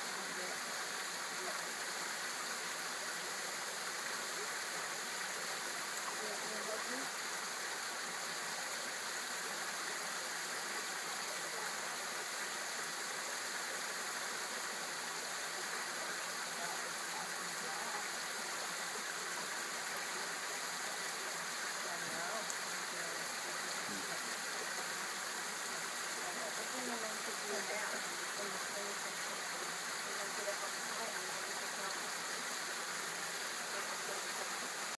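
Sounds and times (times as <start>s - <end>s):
waterfall splashing into pool: 0.0s - 34.9s.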